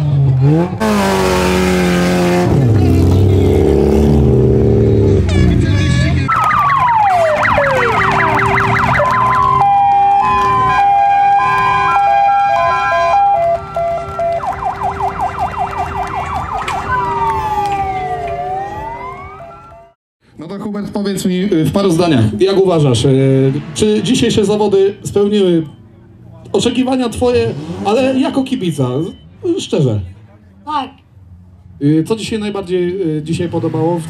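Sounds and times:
car engine revving: 0.0s - 19.4s, 21.8s - 30.4s
emergency vehicle sirens: 6.2s - 20.0s.

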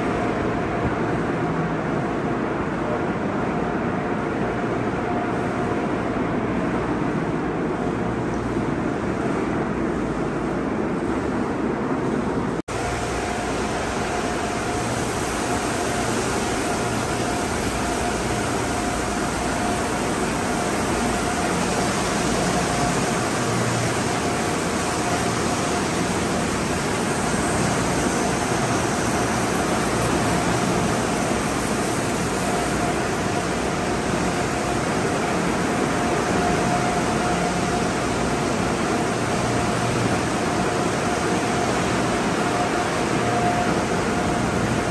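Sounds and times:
water jets spraying on car: 12.7s - 44.9s.

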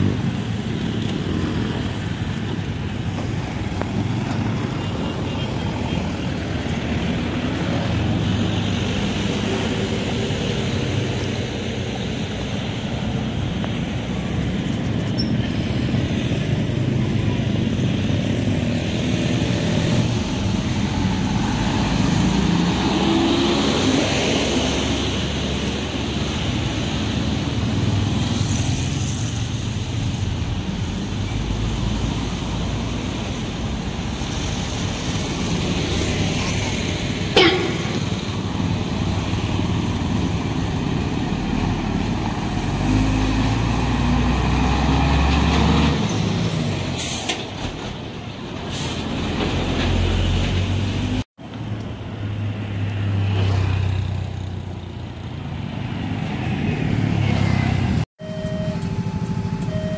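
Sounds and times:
motorcycles passing: 0.0s - 31.1s, 52.0s - 58.1s
trucks passing: 0.0s - 59.9s.

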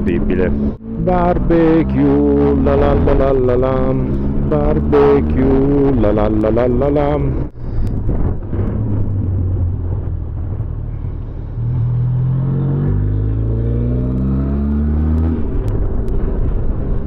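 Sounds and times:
motorcycle engine revving: 0.0s - 7.5s, 11.5s - 17.0s
wind rumble: 0.0s - 17.0s.

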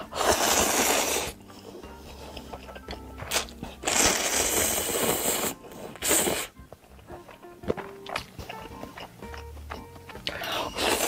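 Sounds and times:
loud noodle slurping: 0.0s - 2.6s, 3.3s - 6.6s, 10.6s - 11.0s.

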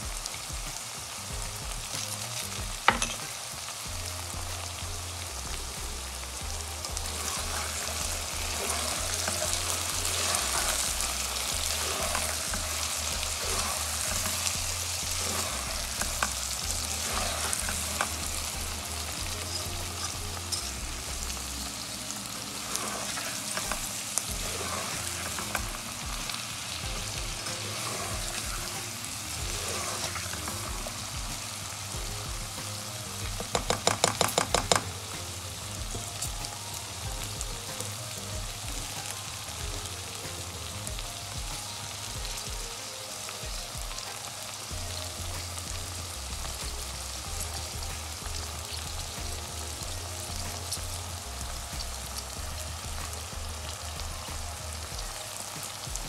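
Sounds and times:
vegetables sizzling in hot oil: 0.0s - 56.0s
spatula stirring and scraping: 3.9s - 36.6s.

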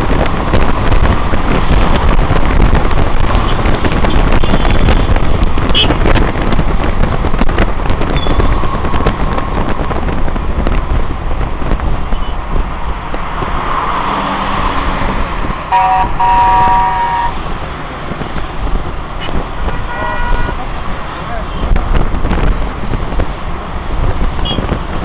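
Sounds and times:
car road and wind noise: 0.0s - 25.0s
surrounding traffic: 0.0s - 25.0s
car horn honking: 5.7s - 6.0s, 15.7s - 17.4s, 19.2s - 20.6s, 24.4s - 24.7s.

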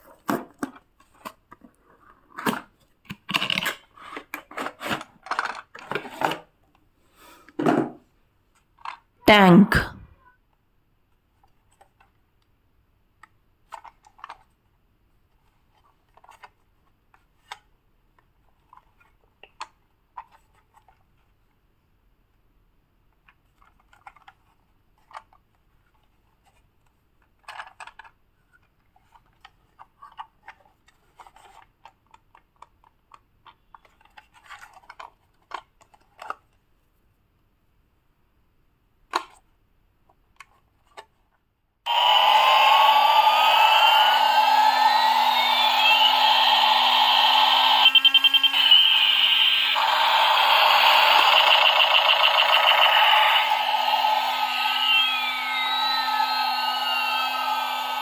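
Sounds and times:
plastic toy clicks and scrapes: 2.4s - 6.4s, 41.9s - 58.0s.

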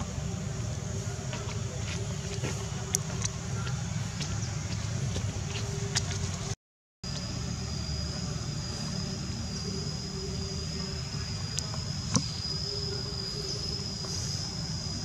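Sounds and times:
high-pitched insect drone: 7.1s - 15.0s.

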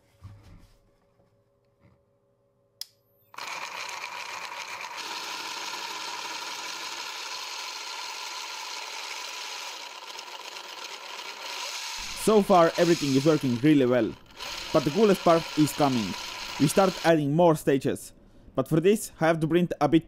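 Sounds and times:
click: 2.8s - 3.0s
gear whirr: 3.3s - 17.1s
electric motor running: 3.3s - 17.2s.

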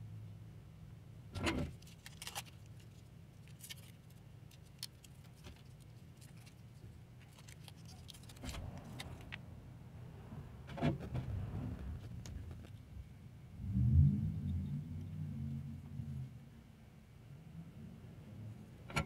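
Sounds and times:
low steady hum: 0.0s - 19.0s.

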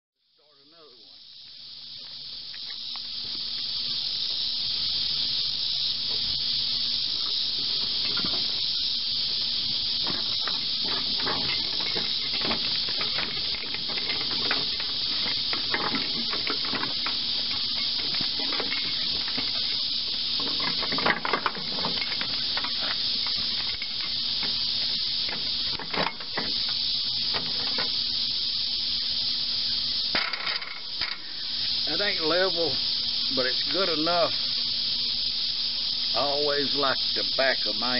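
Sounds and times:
high-pitched insect chorus: 0.2s - 37.9s
knocks clunks and rattles: 10.0s - 19.7s, 20.4s - 24.6s.

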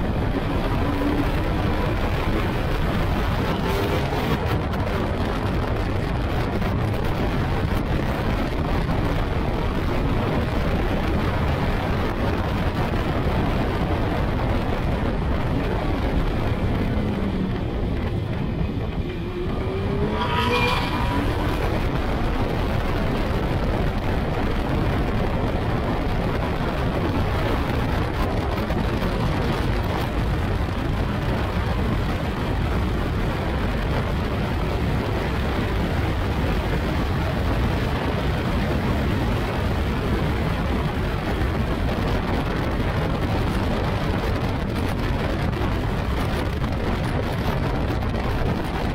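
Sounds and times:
motorbike engine revving: 0.0s - 5.5s, 15.7s - 23.1s
wind noise: 0.0s - 48.9s.

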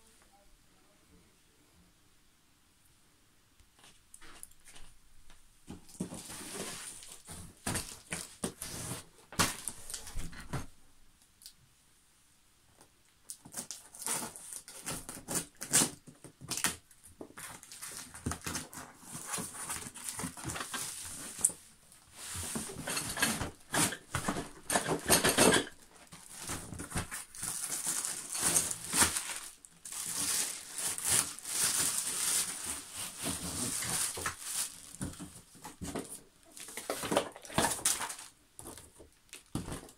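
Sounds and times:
plastic wrapping crinkling: 5.7s - 10.7s, 17.4s - 39.9s
tape tearing: 13.4s - 16.8s, 22.5s - 35.2s.

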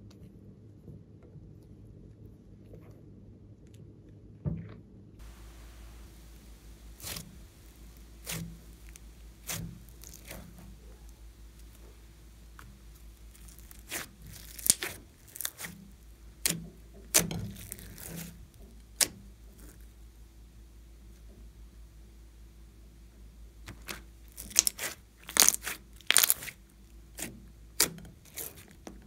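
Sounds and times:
slime popping and crackling: 5.2s - 19.8s, 23.7s - 29.0s.

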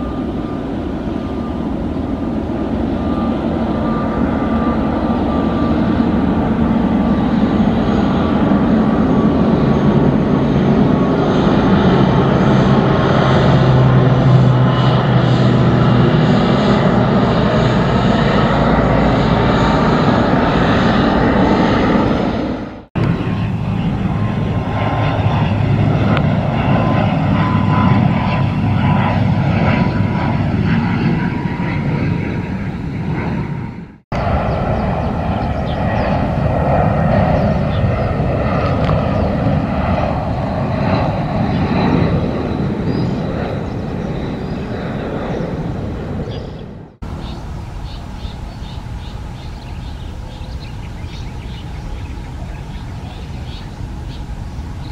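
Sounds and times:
faint high whine: 0.0s - 11.8s, 47.0s - 54.9s
jet engines rumbling: 0.0s - 54.9s
propeller airliner flying overhead: 0.0s - 54.9s.

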